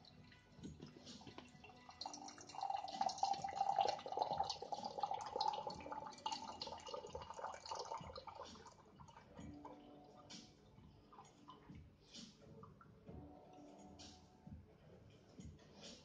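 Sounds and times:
water pouring into a pitcher: 0.0 - 10.3.

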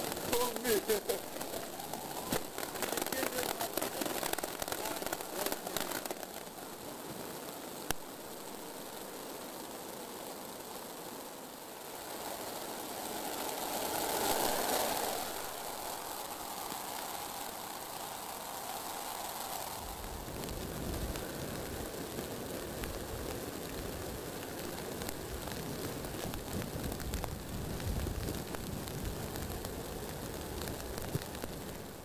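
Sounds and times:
wind buffeting microphone: 19.7 - 31.9.

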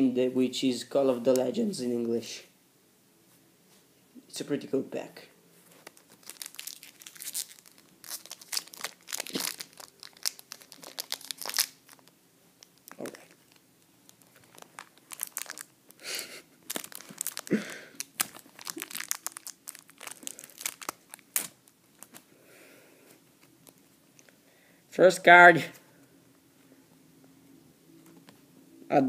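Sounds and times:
foil wrapper tearing and crinkling: 5.8 - 22.2.

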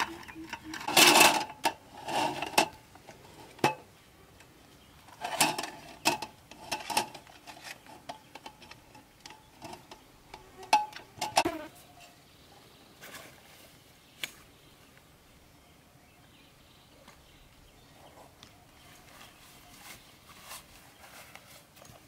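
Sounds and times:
metal slats clattering: 0.0 - 2.8.

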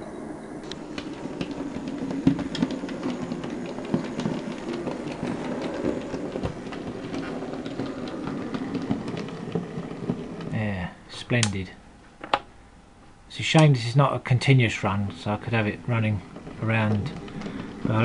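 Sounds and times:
electric motor hum: 0.0 - 11.1, 14.6 - 18.0
wheels clicking over rail joints: 0.6 - 11.6, 14.5 - 18.0.

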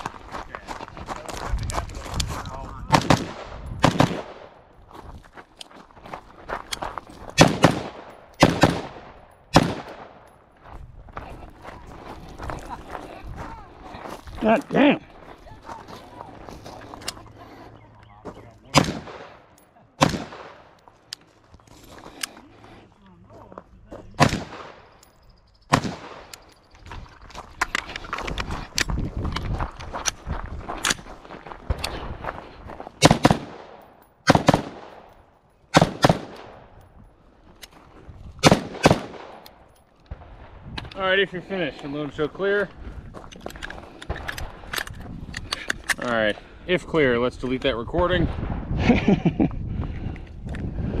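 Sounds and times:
gunshots with echo: 2.9 - 4.6, 7.4 - 10.3, 18.7 - 20.7, 24.2 - 24.9, 25.7 - 26.3, 33.0 - 35.1, 35.7 - 36.7, 38.4 - 39.4.

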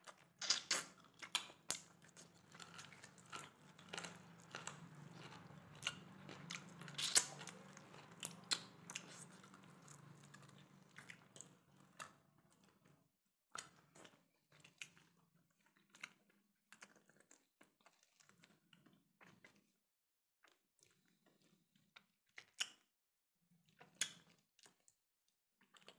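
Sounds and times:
person chewing with crunching: 0.0 - 19.6, 25.6 - 25.9
low steady hum: 1.8 - 12.6.

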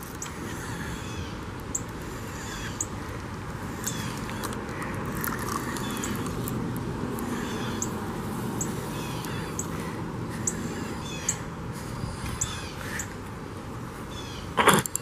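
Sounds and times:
birds calling: 0.0 - 15.0
steady low rumble: 0.4 - 14.6.

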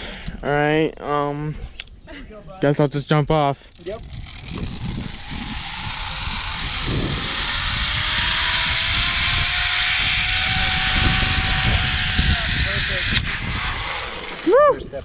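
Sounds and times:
pulley wheels whining: 3.7 - 15.0
rush of wind: 3.7 - 15.0.

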